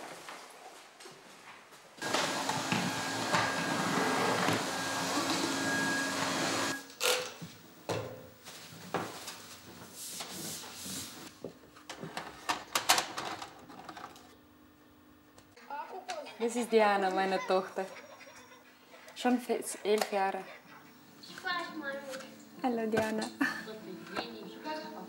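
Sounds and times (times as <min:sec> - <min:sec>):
vacuum cleaner running: 0:02.0 - 0:06.8.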